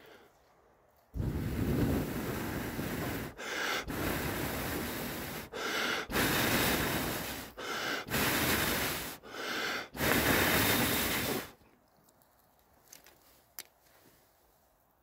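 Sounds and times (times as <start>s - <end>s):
gasping breath in: 0.0s - 0.3s, 1.2s - 11.6s
person blowing hard: 1.2s - 11.6s.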